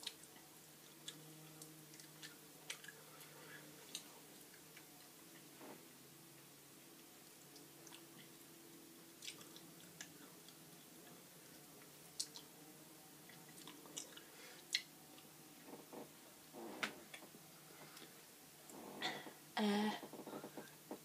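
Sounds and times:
low steady hum: 0.0 - 21.0
wet chewing clicks: 0.9 - 4.9, 9.2 - 10.6, 12.1 - 12.5, 13.2 - 15.3.

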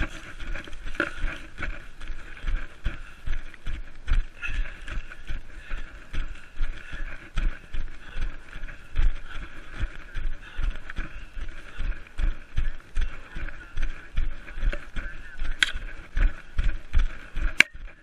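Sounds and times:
running footfalls on forest ground: 0.0 - 18.0.

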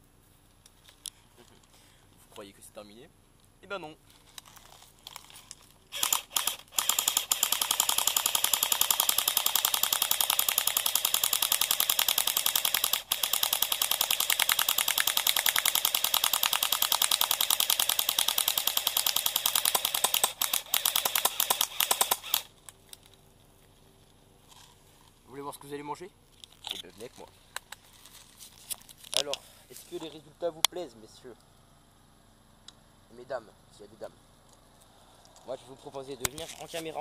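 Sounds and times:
airsoft gun firing bursts: 5.9 - 22.5.

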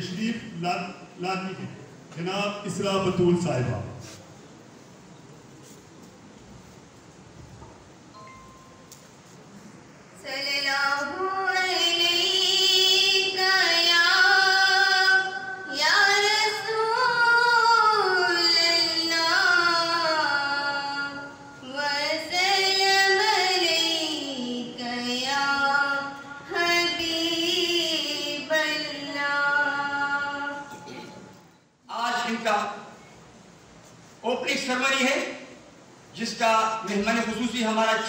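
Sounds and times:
woman's melodic religious recitation: 10.2 - 31.3.

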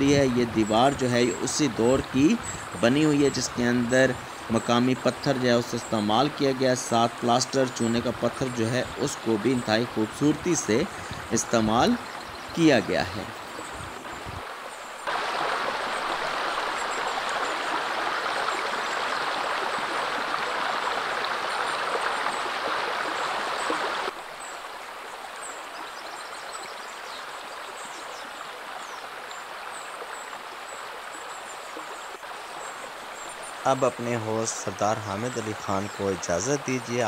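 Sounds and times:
river water rushing: 0.0 - 37.0.

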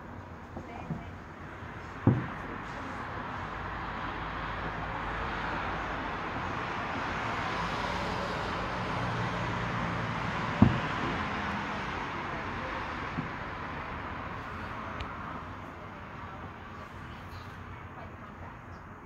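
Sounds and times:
city traffic hiss: 0.0 - 19.0
distant fireworks booming: 0.4 - 5.0, 9.2 - 15.5.

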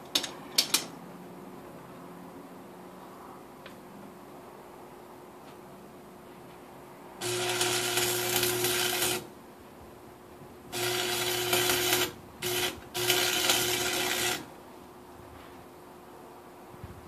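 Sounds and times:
cutoff wheel cutting metal: 7.2 - 9.3, 10.7 - 14.5.

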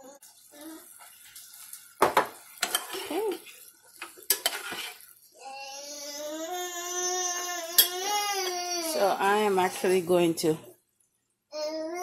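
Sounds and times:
metal spoon scraping saucepan: 2.6 - 5.1.

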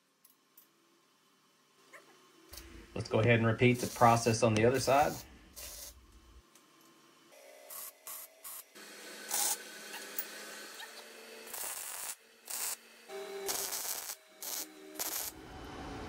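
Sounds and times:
welding arc crackling: 2.6 - 6.1, 7.7 - 15.4.

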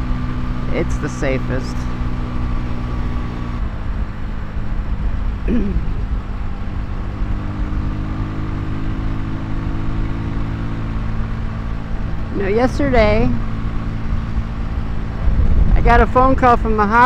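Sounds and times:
motorcycle engine cruising: 0.0 - 17.0
wind rumble on microphone: 11.0 - 17.0.

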